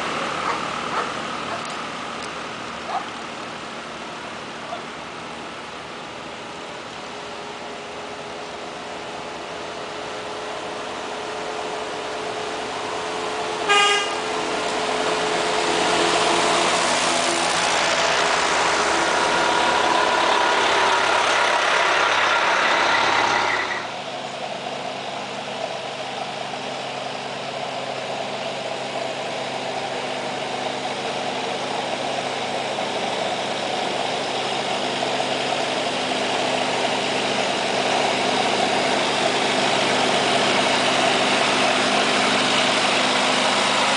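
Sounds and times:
old tractor engine running: 0:00.0 - 0:43.9
vehicle engine passing by: 0:10.6 - 0:24.3
vehicle horn toot: 0:13.7 - 0:14.3.

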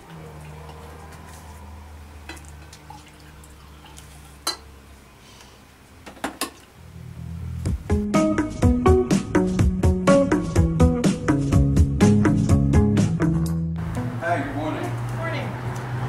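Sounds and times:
coffee pouring: 0:02.2 - 0:04.7
mug and carafe clinking: 0:03.8 - 0:04.7.

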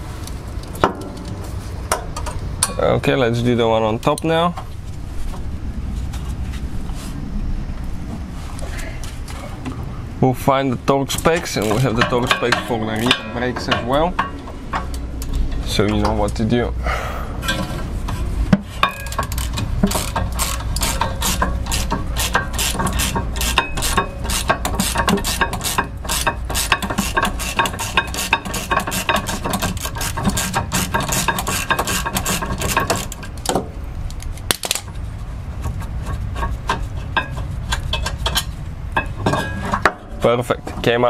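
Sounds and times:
ratchet wrench clicking: 0:19.0 - 0:33.1.

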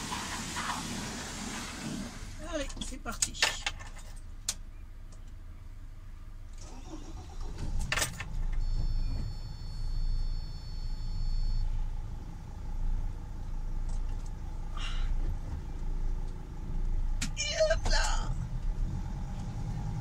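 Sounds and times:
engine idling: 0:06.5 - 0:18.8.

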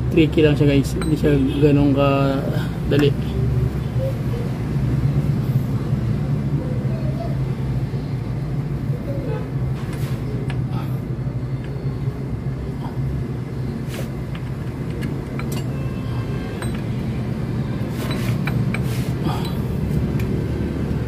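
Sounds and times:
metal gears and tools clinking: 0:14.7 - 0:17.0.

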